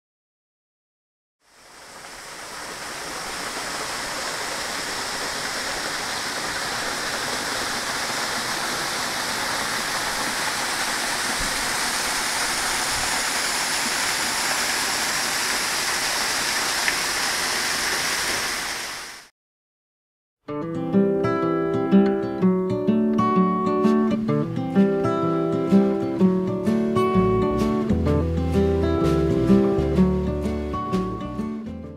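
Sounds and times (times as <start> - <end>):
waterfall rushing: 1.4 - 19.3.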